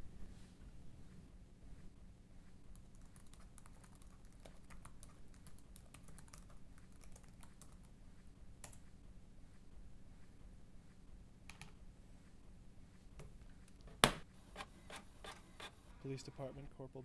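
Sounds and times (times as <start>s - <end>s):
laptop keyboard typing: 2.7s - 8.0s, 8.6s - 8.9s.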